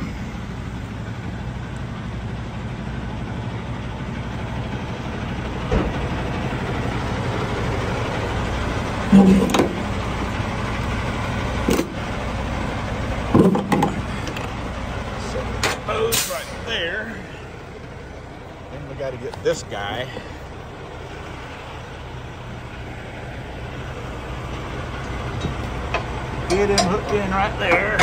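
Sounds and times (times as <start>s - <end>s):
diesel engine idling: 0.0s - 28.0s
metal knocks and clanks: 9.0s - 9.9s, 13.3s - 14.5s, 25.3s - 28.0s.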